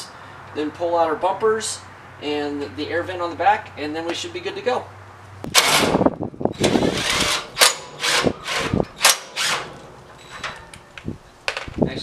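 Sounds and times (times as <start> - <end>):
cordless drill bursts: 6.6 - 9.8.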